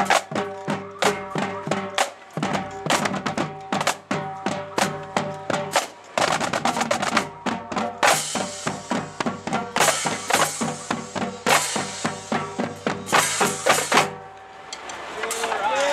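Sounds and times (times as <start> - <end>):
snare and bass drum strokes: 0.0 - 14.3
crash cymbals hitting: 8.0 - 14.9.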